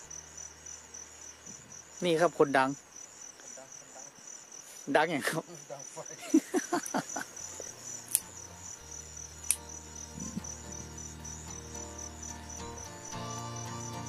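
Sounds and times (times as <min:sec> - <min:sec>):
crickets chirping: 0:00.0 - 0:14.0
soft background music: 0:07.4 - 0:14.0.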